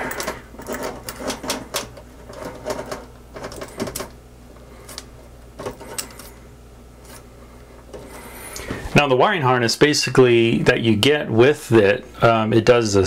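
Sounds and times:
wires being twisted by hand: 0.0s - 8.8s.

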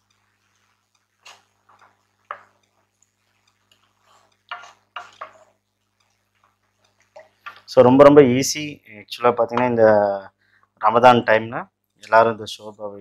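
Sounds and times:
spatula stirring broth: 0.0s - 7.8s
spatula knocking against pot: 1.2s - 2.7s, 4.3s - 5.5s.

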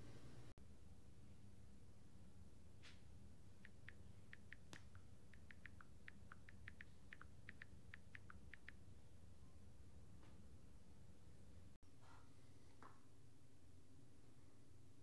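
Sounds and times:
phone keyboard clicks: 3.6s - 8.8s.

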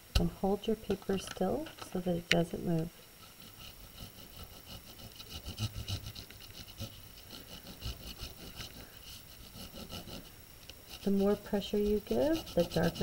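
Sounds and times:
crayon rubbing on paper: 3.3s - 13.0s.

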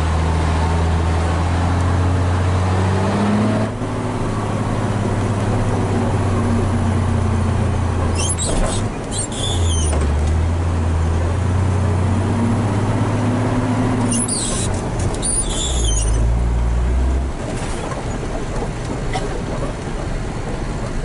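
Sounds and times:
truck diesel engine running: 3.6s - 21.0s
high-pitched squeaks: 8.1s - 10.0s, 14.0s - 16.3s.

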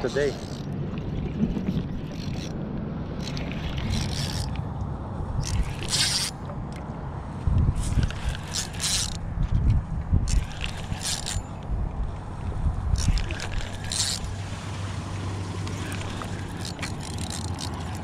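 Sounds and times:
fishing reel cranking: 0.0s - 0.7s, 1.9s - 2.6s, 3.2s - 4.6s, 5.4s - 6.4s, 7.8s - 9.2s, 10.3s - 11.7s, 12.9s - 14.4s, 15.7s - 18.0s
wind rumble on microphone: 0.0s - 18.0s.

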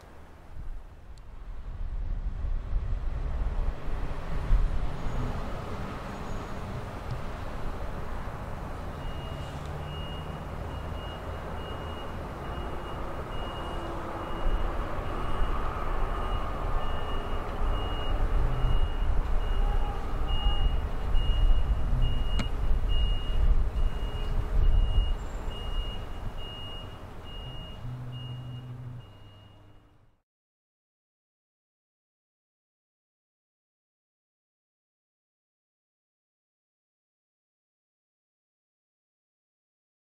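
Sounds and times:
diesel engine rumbling: 0.0s - 30.2s
backup alarm beeping: 9.0s - 19.7s, 20.3s - 29.9s.

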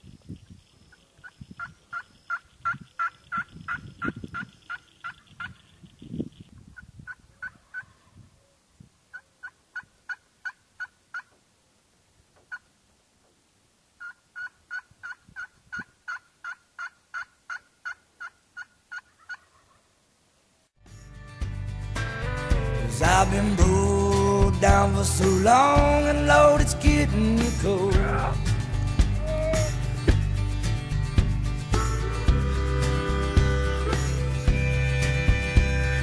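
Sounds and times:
turkey yelping: 1.6s - 5.6s, 7.1s - 8.1s, 9.1s - 11.3s, 14.0s - 19.9s
low thuds: 21.4s - 32.5s.

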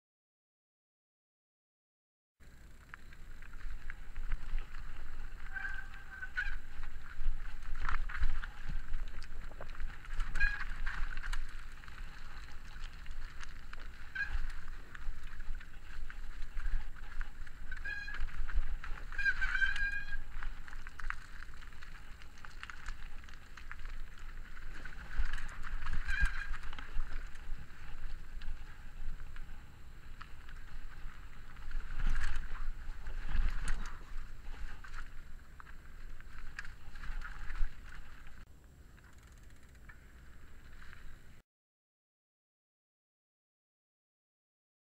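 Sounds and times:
bike disc brakes squealing: 4.4s - 8.9s, 10.0s - 29.1s.

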